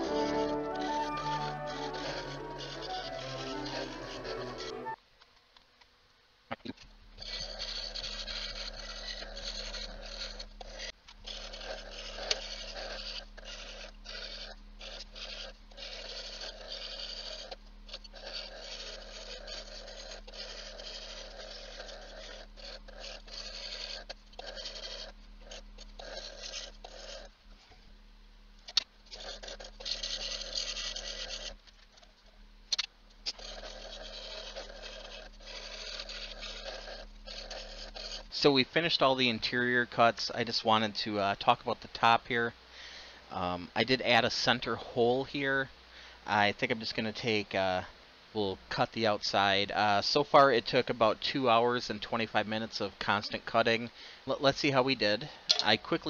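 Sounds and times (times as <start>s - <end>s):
saw blade cutting wood: 0.0s - 5.0s, 7.2s - 27.3s, 28.8s - 31.6s, 32.8s - 39.1s
scroll saw humming: 0.0s - 5.0s, 7.2s - 27.7s, 28.7s - 32.1s, 32.7s - 39.1s.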